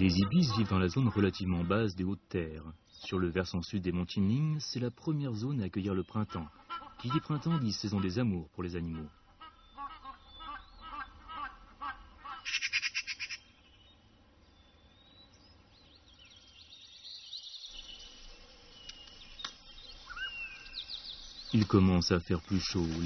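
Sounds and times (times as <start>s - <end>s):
harsh bird chatter: 0.0s - 4.3s, 5.0s - 13.5s, 15.8s - 23.0s
birds calling: 0.0s - 23.0s
thin bird chirps and whistles: 14.6s - 21.6s.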